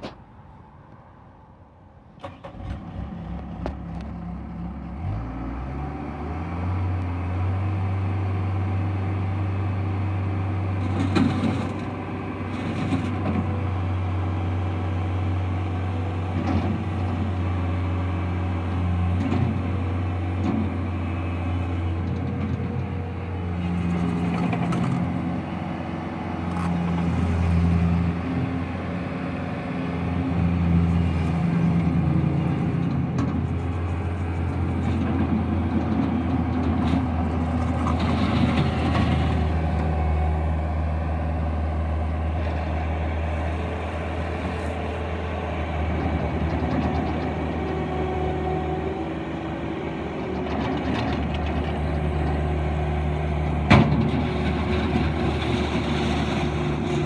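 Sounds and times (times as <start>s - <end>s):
diesel engine revving: 2.2s - 57.0s
gravel scraping: 20.5s - 25.8s, 26.4s - 27.8s, 30.7s - 40.5s, 42.0s - 52.6s, 53.8s - 57.0s.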